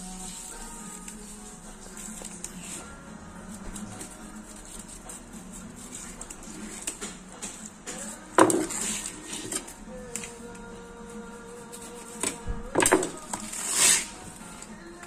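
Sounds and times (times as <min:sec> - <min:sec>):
knife scraping fish: 0:08.4 - 0:10.3, 0:13.1 - 0:14.3.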